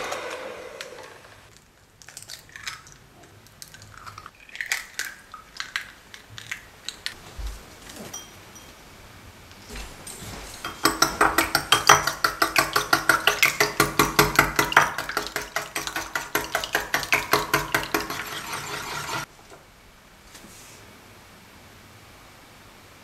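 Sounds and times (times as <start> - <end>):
whisk clattering in glass bowl: 10.7 - 19.3.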